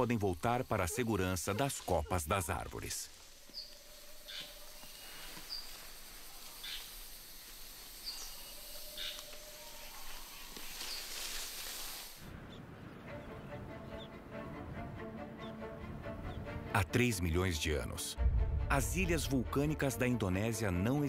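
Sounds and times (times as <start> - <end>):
insect hiss: 0.0 - 12.3
high bird chirps: 3.5 - 5.9
low background music: 12.6 - 21.0.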